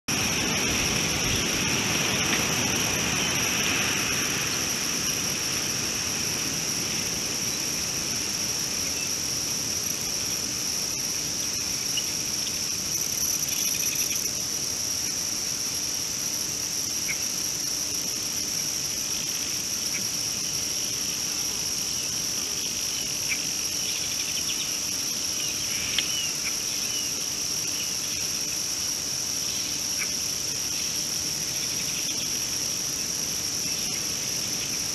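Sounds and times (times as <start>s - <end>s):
broad rushing noise: 0.1s - 11.5s
high-pitched insect chorus: 0.1s - 34.9s.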